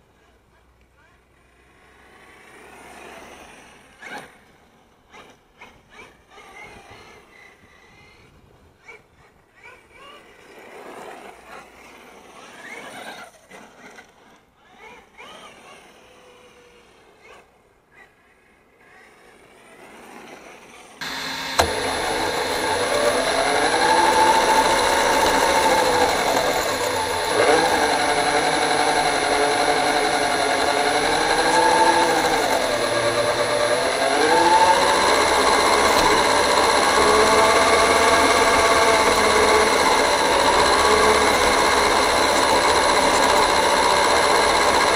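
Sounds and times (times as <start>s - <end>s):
electric motor whining: 21.0s - 44.9s.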